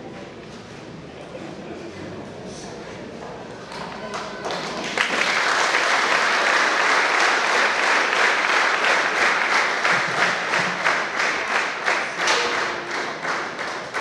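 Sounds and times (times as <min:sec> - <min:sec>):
audience applauding: 0:04.1 - 0:14.0.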